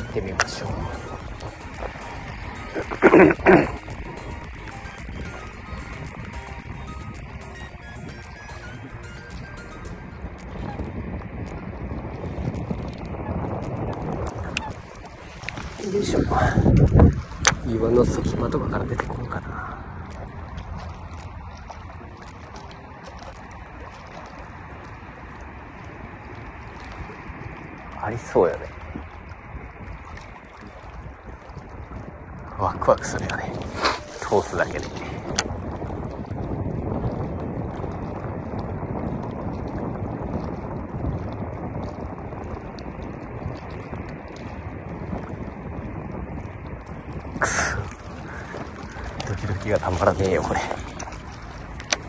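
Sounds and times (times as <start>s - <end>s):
flowing river water: 0.0s - 52.0s
wind: 0.0s - 52.0s
faint ticks: 5.9s - 15.8s, 18.9s - 27.8s.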